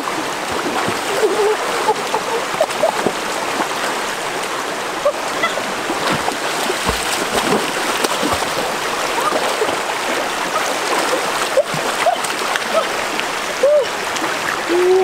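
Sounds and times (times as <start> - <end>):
river water running: 0.0 - 15.0
small splashes and drips: 5.2 - 14.7.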